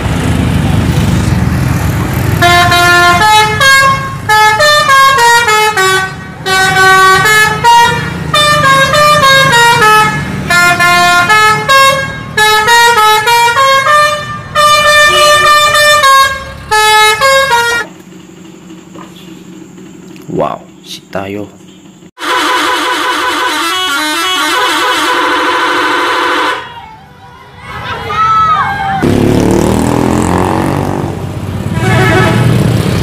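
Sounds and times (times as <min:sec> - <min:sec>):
bus engine running: 0:00.0 - 0:33.0
multi-tone musical bus horn: 0:02.3 - 0:18.0, 0:22.2 - 0:27.2, 0:31.6 - 0:32.9.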